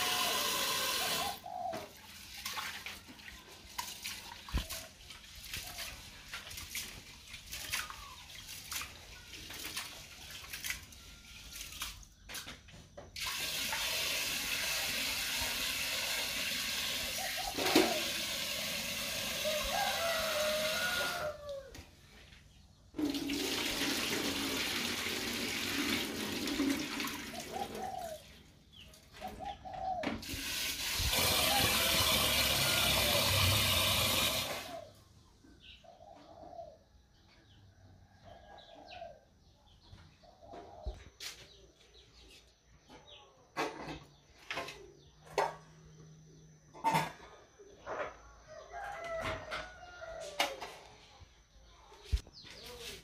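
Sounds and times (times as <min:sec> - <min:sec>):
tap water running into metal pot: 0:00.0 - 0:01.4, 0:13.2 - 0:20.0, 0:23.0 - 0:27.5, 0:30.2 - 0:34.7.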